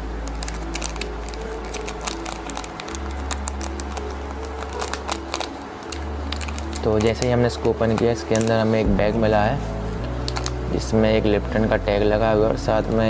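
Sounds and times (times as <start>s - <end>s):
tea-bag sachet tearing and crinkling: 0.0s - 8.8s, 10.0s - 10.9s
background music with bass chords: 0.0s - 13.0s.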